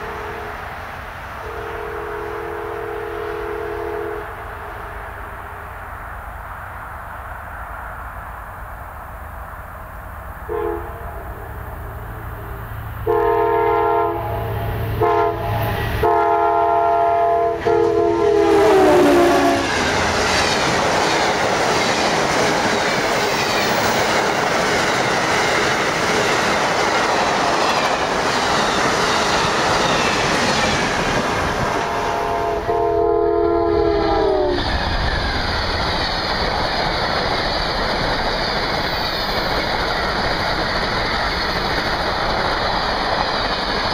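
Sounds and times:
train horn: 0.0s - 0.6s, 1.4s - 5.0s, 10.5s - 11.6s, 13.0s - 19.8s, 31.7s - 34.6s
rumble and clickety-clack of train cars: 0.0s - 43.9s.

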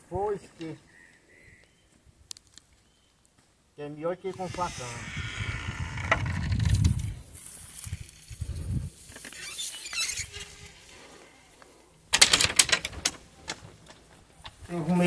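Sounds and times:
rapid crackling: 4.3s - 11.2s.

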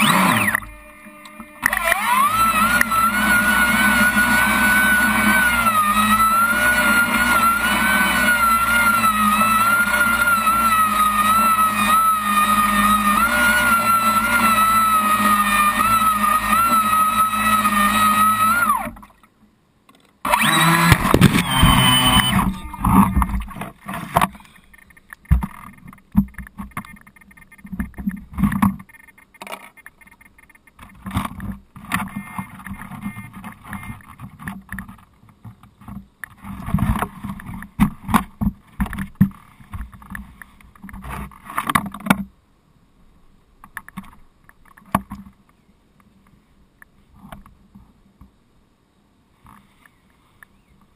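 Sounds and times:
model boat motor whining: 0.0s - 19.1s, 20.2s - 25.8s.

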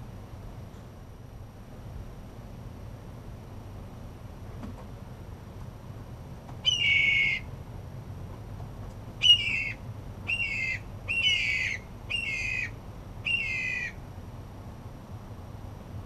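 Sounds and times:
jay squawking: 6.7s - 7.5s, 9.2s - 14.0s.

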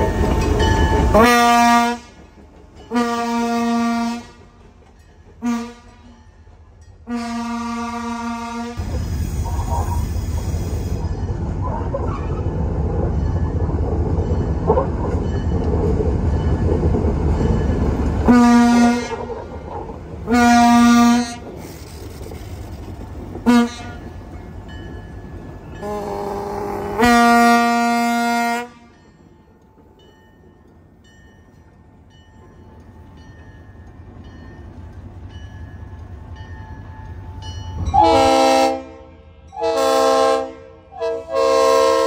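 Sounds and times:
locomotive engine rumble: 0.0s - 38.9s
locomotive air horn: 1.1s - 2.2s, 2.9s - 4.4s, 5.4s - 6.1s, 7.1s - 9.9s, 18.2s - 19.3s, 20.3s - 21.5s, 23.4s - 24.2s, 25.8s - 29.0s, 37.9s - 42.0s.

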